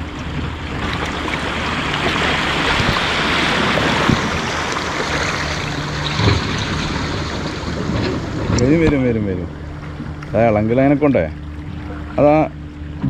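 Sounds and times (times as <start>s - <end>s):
waves washing over rocks: 0.0s - 9.4s.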